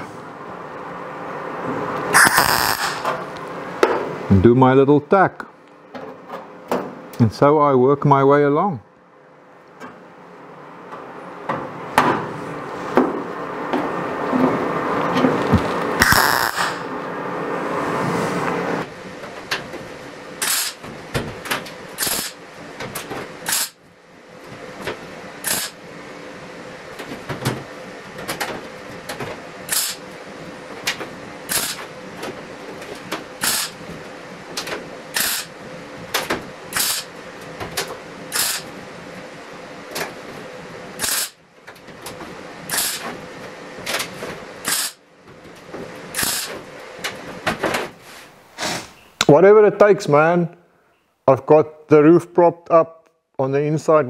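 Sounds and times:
steady hum: 0.0s - 54.0s
welder crackling bursts: 2.2s - 3.1s, 16.0s - 16.9s, 22.0s - 22.4s, 25.4s - 25.8s.

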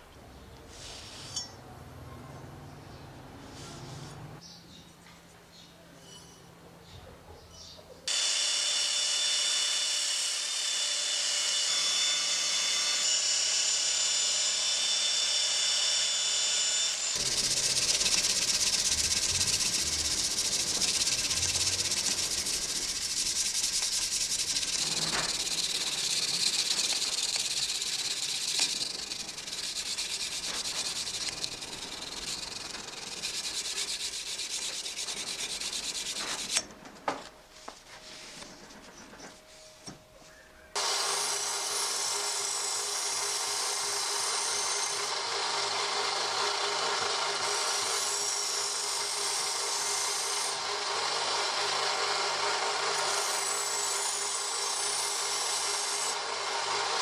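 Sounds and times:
sanding steel blade: 17.1s - 36.6s, 41.0s - 57.0s.

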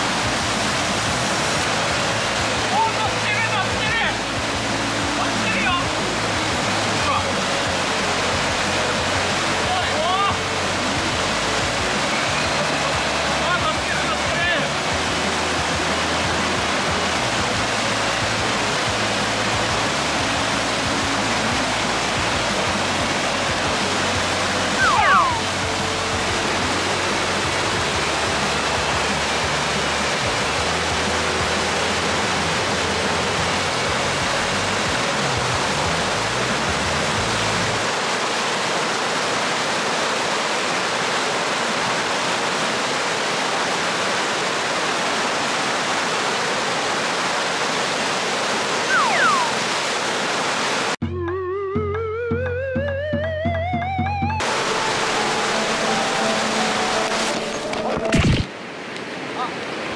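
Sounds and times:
background music with bass: 0.0s - 37.8s, 51.0s - 58.2s
whitewater rushing over weir: 0.0s - 51.0s, 54.4s - 59.9s
brief falling sound: 24.8s - 25.5s.

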